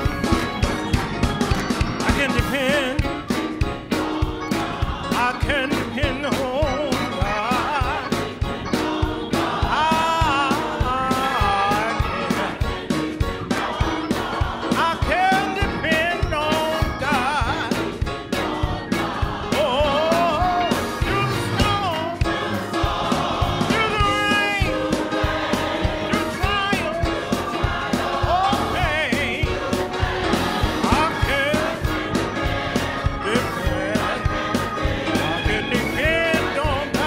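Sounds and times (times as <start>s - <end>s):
band accompaniment: 0.0s - 37.0s
gospel choir singing: 0.0s - 37.0s.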